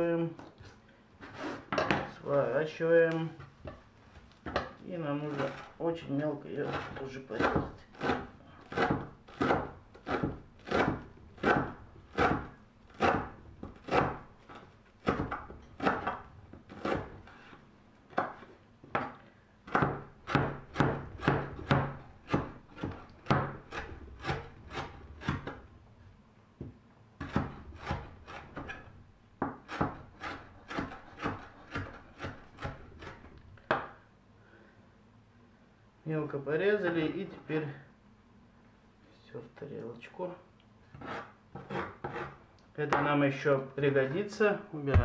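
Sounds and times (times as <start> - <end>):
knife chopping on wooden board: 6.6 - 14.3, 15.0 - 17.2, 18.1 - 25.6, 26.6 - 28.8, 29.4 - 34.0.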